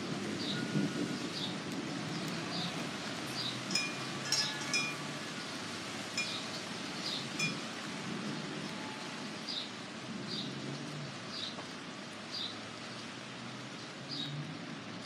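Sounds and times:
steady rain falling: 0.0 - 15.0
metallic chiming clinks: 3.7 - 5.2, 6.2 - 6.5, 7.4 - 7.7.

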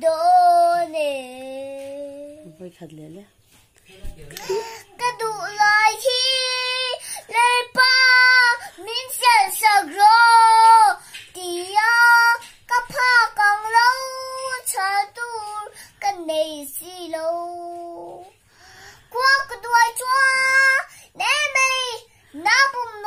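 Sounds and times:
girl singing: 0.0 - 2.6, 4.4 - 23.0.

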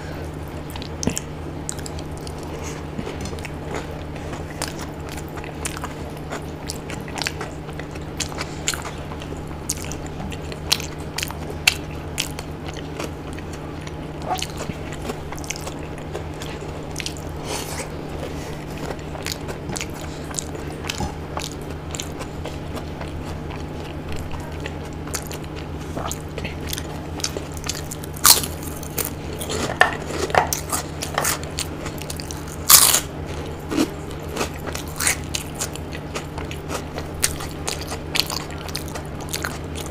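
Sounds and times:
steady low hum: 0.0 - 39.9
person chewing with mouth clicks: 0.4 - 39.9
sharp crunching bites: 32.1 - 33.1.

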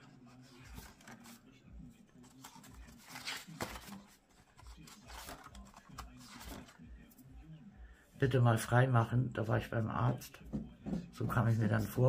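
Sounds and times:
sketchbook pages turning: 0.0 - 6.8.

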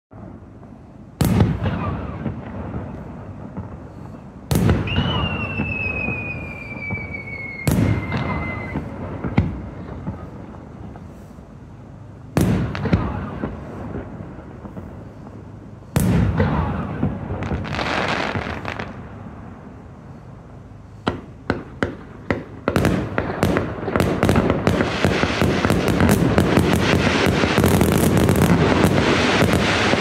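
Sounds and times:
firework shells booming: 0.1 - 11.2, 12.3 - 19.2, 20.9 - 30.0
falling whistle: 4.8 - 8.9
sharp crack: 21.0 - 30.0.

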